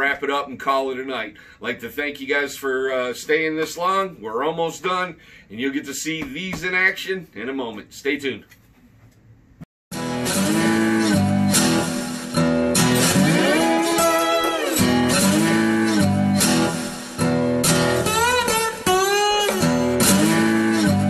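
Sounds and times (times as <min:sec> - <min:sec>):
bluesy acoustic guitar strumming: 0:09.9 - 0:21.0.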